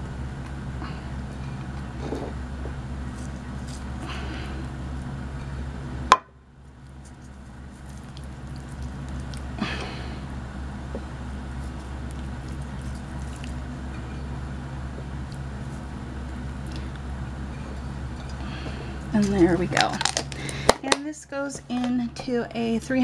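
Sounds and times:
low hum: 0.0s - 23.0s
wet squishing of raw meat: 6.7s - 9.6s, 11.4s - 14.0s.

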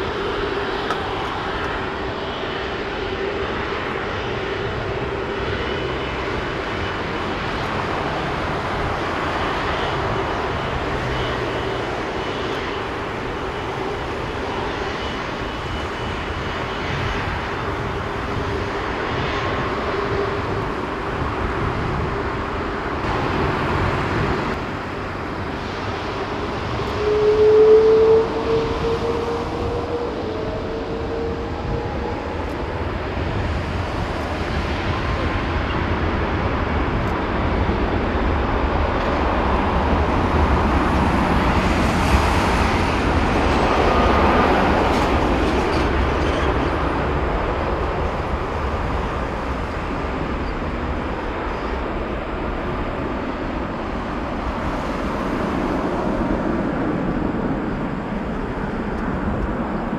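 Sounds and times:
jet engine rumble: 0.0s - 59.9s.

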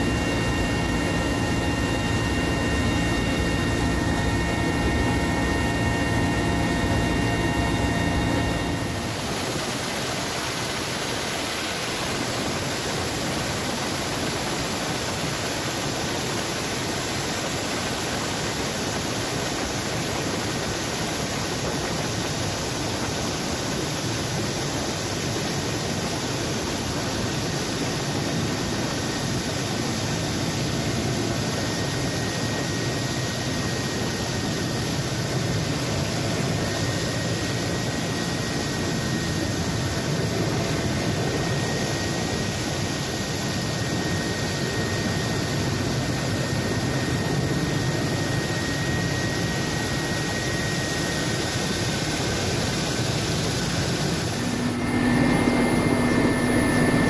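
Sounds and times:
faint high whine: 0.0s - 57.0s
helicopter engines and rotor: 0.0s - 57.0s.

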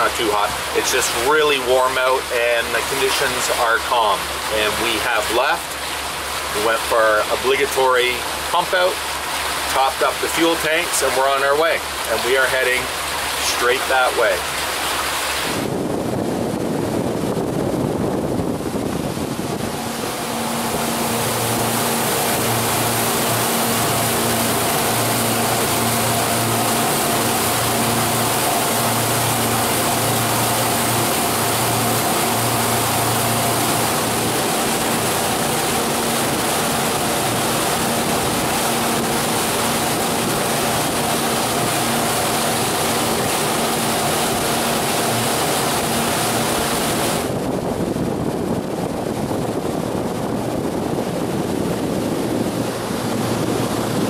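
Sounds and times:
boat engine drone: 0.0s - 54.0s
water rushing: 0.0s - 54.0s
wind rumbling on microphone: 14.2s - 54.0s.

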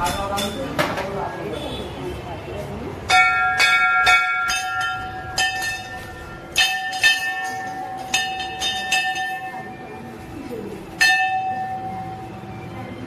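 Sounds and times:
metal bell ringing: 3.1s - 10.2s, 10.9s - 12.6s.

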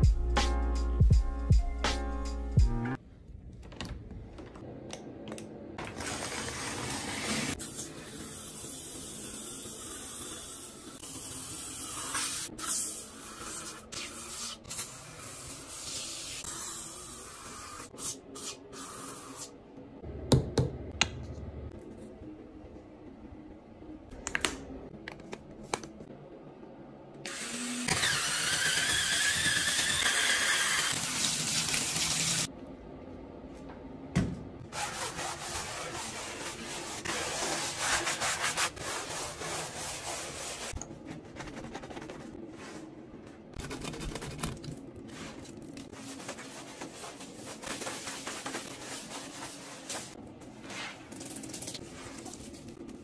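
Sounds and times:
sponge scrubbing wet tile: 34.7s - 42.8s.

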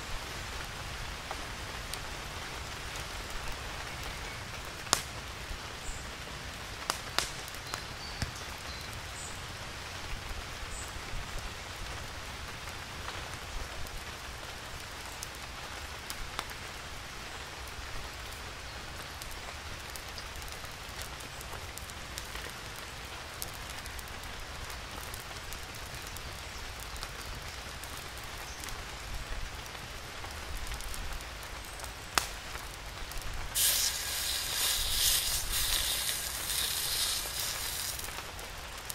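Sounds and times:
wood fire crackling: 0.0s - 10.7s, 11.3s - 38.9s
steady rain: 0.0s - 38.9s
steak sizzling in skillet: 33.5s - 38.4s.

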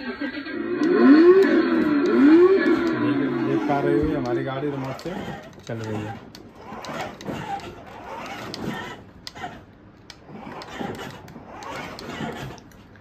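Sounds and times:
toy car electric motors whirring: 0.6s - 13.0s
sharp clicks: 0.8s - 3.1s.

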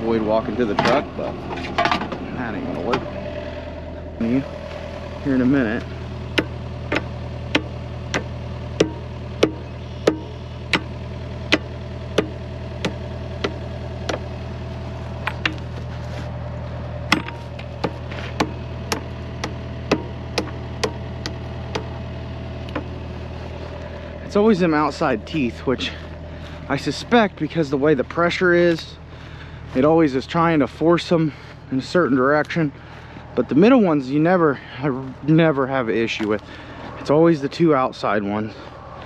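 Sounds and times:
engine idling: 0.0s - 39.0s.

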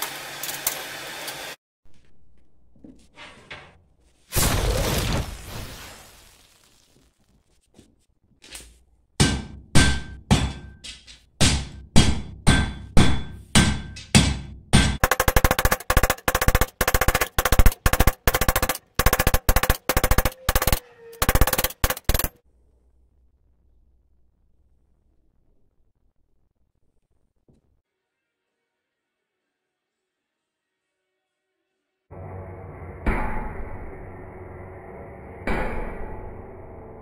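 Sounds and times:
hammer striking metal on anvil: 9.2s - 22.4s, 33.0s - 34.2s, 35.4s - 36.6s
anvil ringing: 12.4s - 22.4s.

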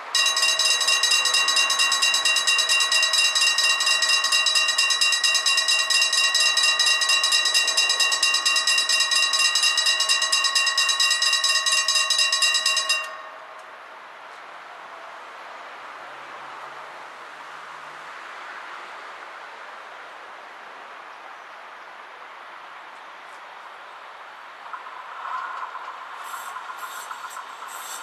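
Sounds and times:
level crossing warning bells ringing: 0.0s - 14.2s.

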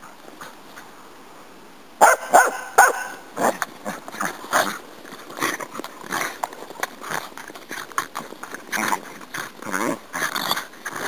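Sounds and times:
dogs barking and yipping: 2.0s - 3.6s.

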